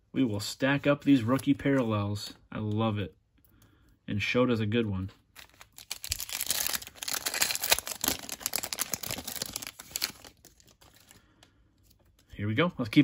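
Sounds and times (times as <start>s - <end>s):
plastic wrapper tearing and crinkling: 5.3s - 11.2s.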